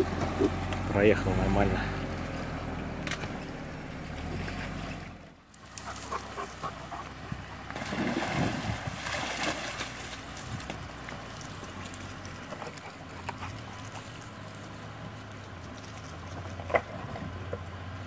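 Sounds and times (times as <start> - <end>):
car engine running: 0.0 - 9.0, 9.8 - 18.0
shallow stream flowing: 2.0 - 18.0
dog splashing through water: 7.7 - 14.2.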